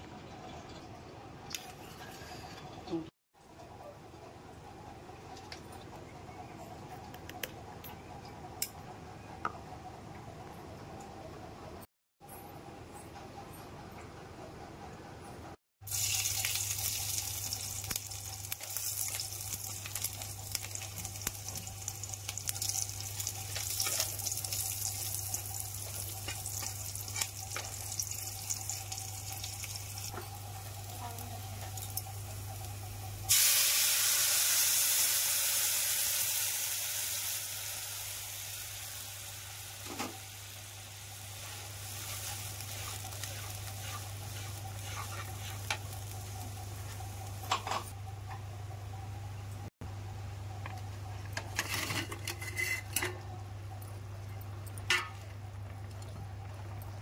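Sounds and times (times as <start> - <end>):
hot oil sizzling: 15.8 - 48.0
spatula stirring in a pan: 22.6 - 30.3, 41.3 - 47.4.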